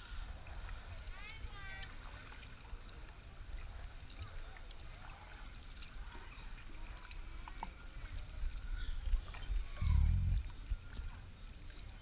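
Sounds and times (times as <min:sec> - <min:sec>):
faint distant voices: 0:00.0 - 0:12.0
kayak paddle dipping in water: 0:00.0 - 0:12.0
steady low rumble: 0:09.6 - 0:11.0.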